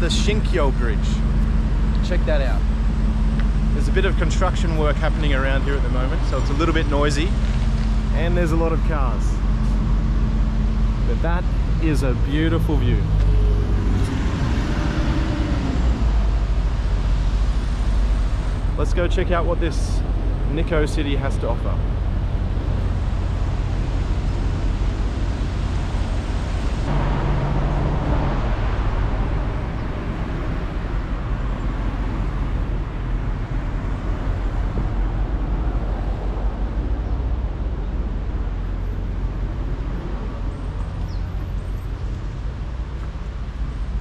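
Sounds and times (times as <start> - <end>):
road traffic passing: 0.0 - 44.0
vehicle passing loudly: 8.0 - 18.8, 21.6 - 40.7.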